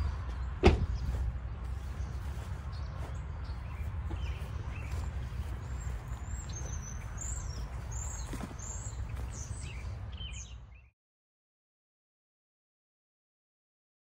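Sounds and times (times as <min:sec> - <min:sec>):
steady low rumble: 0:00.0 - 0:10.4
birds chirping: 0:00.0 - 0:10.9.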